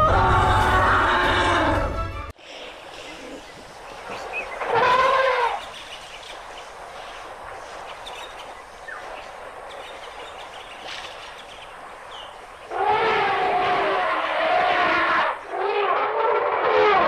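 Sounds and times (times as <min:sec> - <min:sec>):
steady background hiss: 0:02.4 - 0:15.6.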